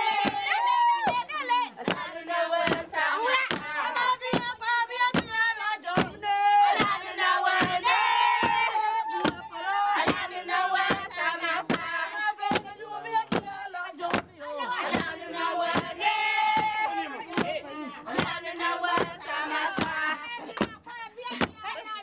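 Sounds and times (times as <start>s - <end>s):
women singing in chanting chorus: 0.0s - 22.0s
wooden beaters knocking floor: 6.0s - 6.2s.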